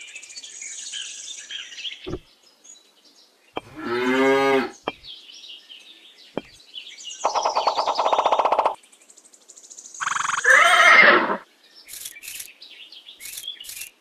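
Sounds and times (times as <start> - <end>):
cow mooing: 3.7 - 4.9.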